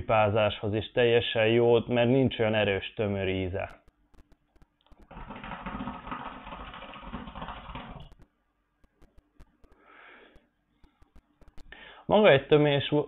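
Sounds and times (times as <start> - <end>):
hookah bubbling: 5.0 - 8.3.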